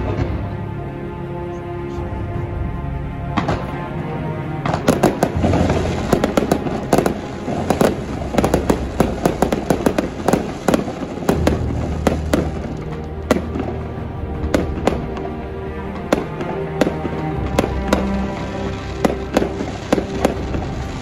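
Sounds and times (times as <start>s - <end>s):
background music: 0.0s - 21.0s
firework shells bursting: 4.6s - 21.0s.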